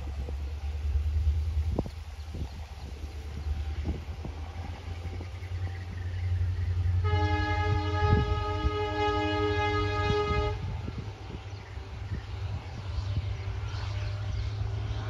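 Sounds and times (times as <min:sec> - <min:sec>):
train rumble: 0:00.0 - 0:15.0
locomotive horn blast: 0:06.8 - 0:11.1.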